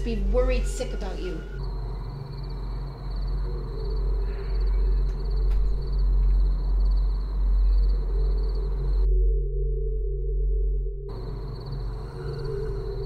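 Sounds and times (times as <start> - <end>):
thin high whine: 0.0 - 3.4
dark low drone: 0.0 - 13.0.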